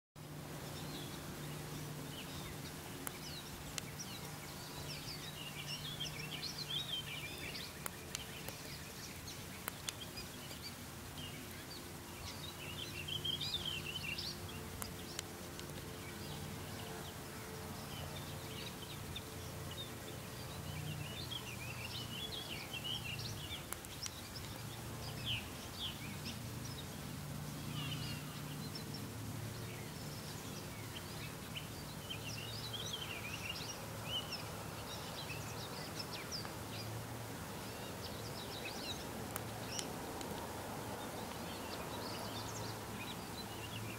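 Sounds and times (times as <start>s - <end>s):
songbirds calling and singing: 0.2s - 43.9s.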